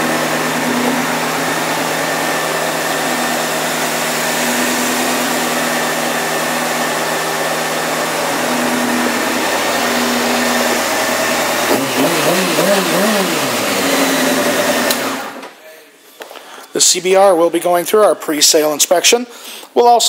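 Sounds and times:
motorcycle engine idling and revving: 0.0s - 15.4s.

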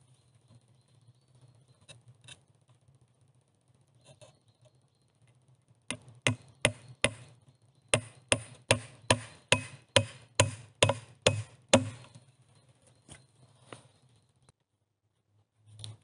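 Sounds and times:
hammer striking nail into wood: 5.9s - 7.3s, 7.9s - 12.1s.

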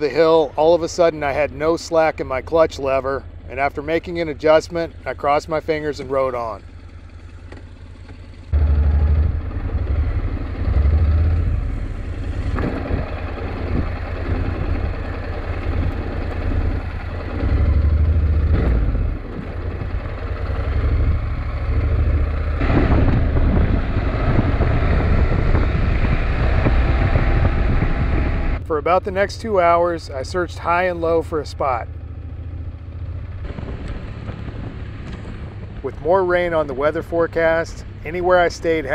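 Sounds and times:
motorcycle engine running: 0.0s - 38.9s
wind rumble on microphone: 8.6s - 28.6s, 33.4s - 36.8s.

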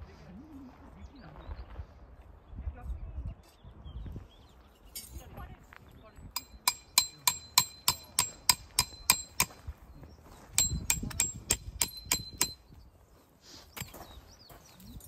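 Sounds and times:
hammer striking metal tent stakes: 6.4s - 9.6s, 10.5s - 12.7s.

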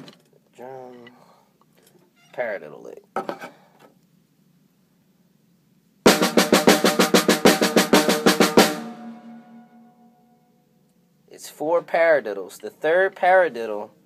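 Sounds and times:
drum paradiddles with drumsticks: 6.1s - 8.9s.

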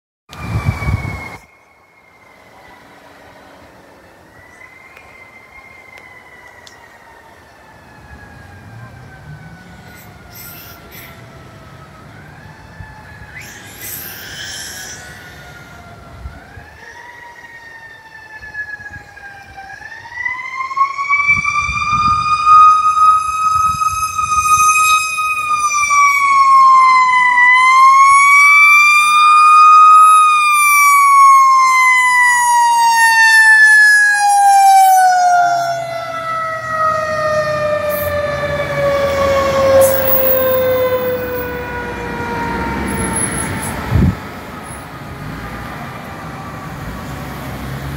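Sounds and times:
mechanical siren wailing: 0.3s - 45.0s.

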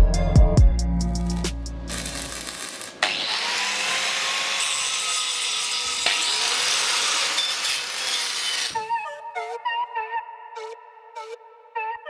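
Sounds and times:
angle grinder grinding steel: 1.2s - 8.9s.

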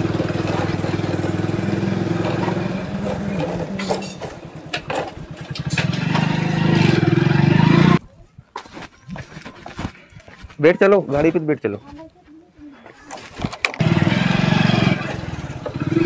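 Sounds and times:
motorcycle engine running: 0.0s - 8.0s, 13.7s - 16.0s.

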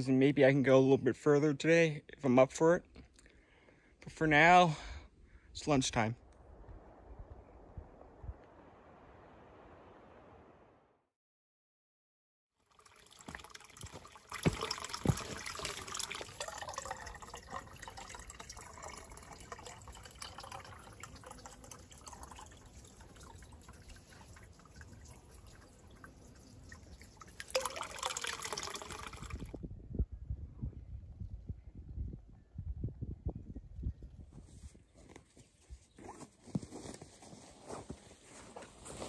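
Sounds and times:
water splashing and gurgling in bottle: 12.7s - 29.6s.

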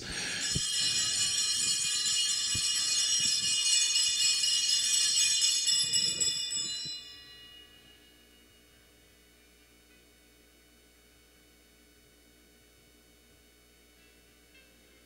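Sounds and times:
bells jingling: 0.0s - 8.8s.

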